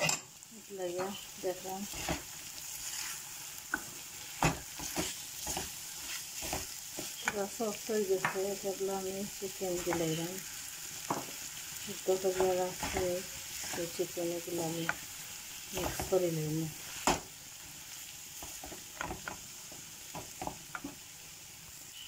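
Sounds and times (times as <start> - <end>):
food frying sizzle: 0.0 - 22.0
wooden spatula scraping pan: 1.8 - 7.6, 9.6 - 15.1.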